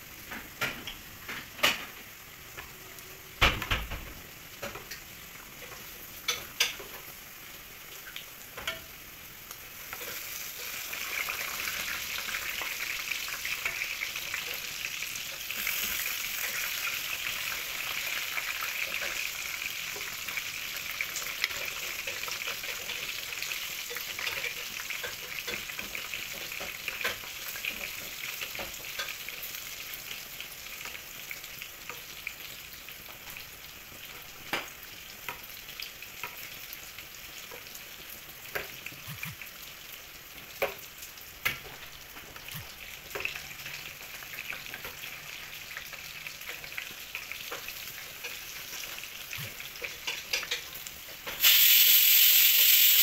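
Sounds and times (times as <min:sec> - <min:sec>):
deep-frying sizzle with pops: 0:00.0 - 0:53.0
spatula stirring in pan: 0:09.8 - 0:30.2.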